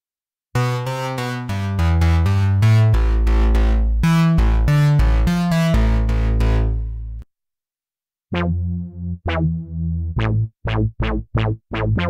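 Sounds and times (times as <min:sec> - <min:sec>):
metallic synth bass line: 0:00.6 - 0:07.2.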